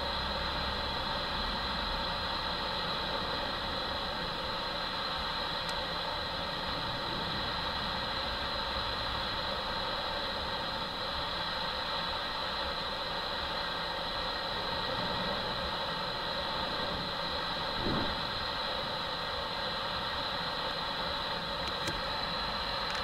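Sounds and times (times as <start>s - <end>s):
jet engines whining: 0.0s - 23.0s
wind rumbling on microphone: 17.7s - 18.4s.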